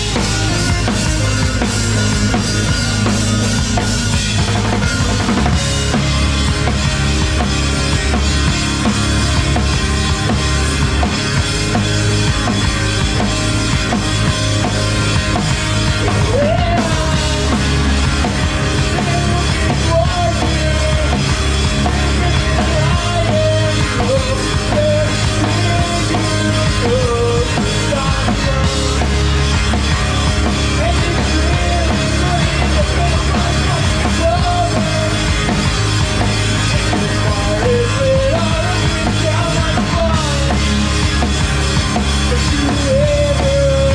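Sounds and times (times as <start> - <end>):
rock band playing live: 0.0 - 43.9.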